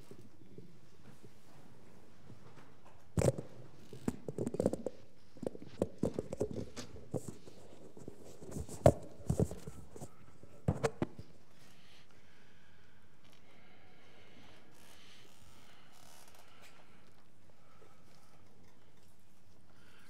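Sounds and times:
headset microphone handling noise: 1.1s - 11.4s.

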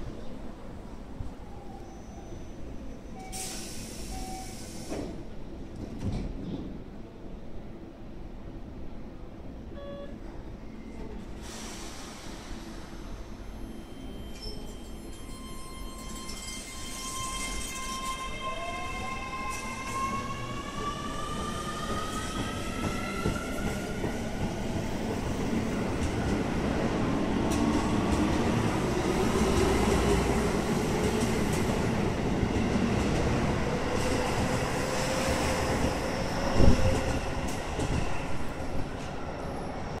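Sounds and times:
train cars rumbling on rails: 19.9s - 40.0s.

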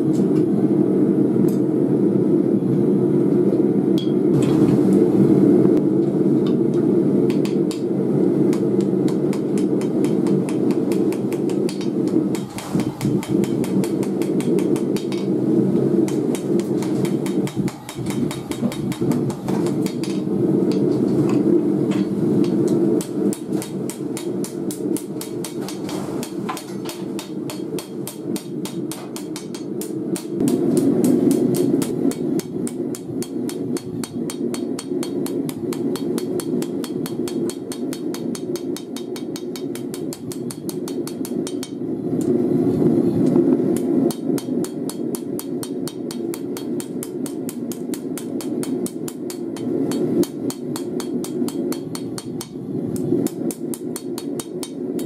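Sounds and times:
gas forge roaring: 0.0s - 55.0s
hammer striking on anvil: 16.1s - 41.8s, 43.8s - 52.6s, 53.2s - 55.0s.

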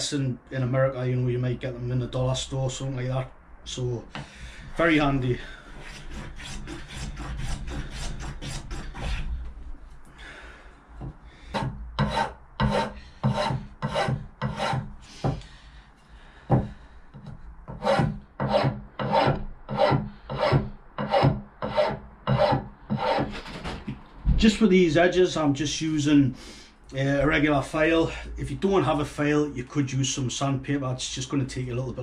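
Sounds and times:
file rasping on wood: 5.7s - 9.4s, 11.5s - 15.4s, 17.7s - 23.8s.

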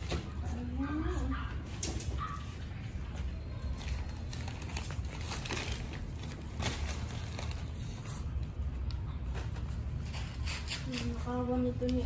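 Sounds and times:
paper crinkling: 3.6s - 8.4s.

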